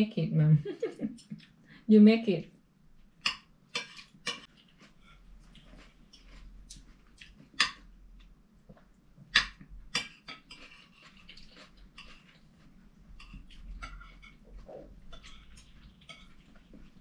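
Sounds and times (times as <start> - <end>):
cutlery clinking on plates: 3.2 - 4.5, 13.2 - 14.4.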